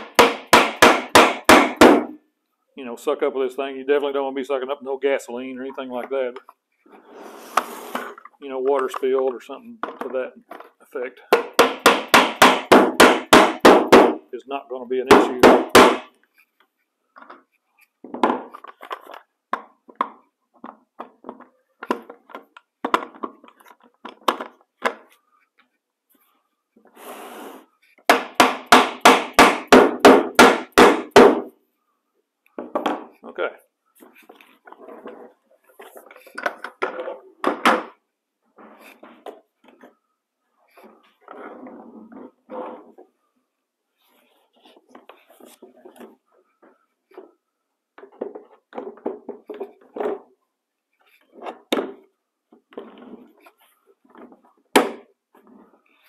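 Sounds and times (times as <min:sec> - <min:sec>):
hard plastic knocking and rattling: 0:18.0 - 0:25.2, 0:45.8 - 0:50.3.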